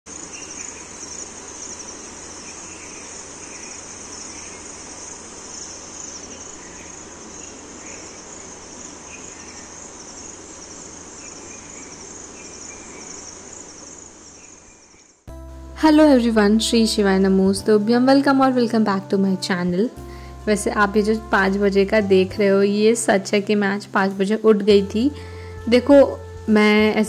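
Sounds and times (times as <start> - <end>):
crickets trilling: 0.1 - 15.3.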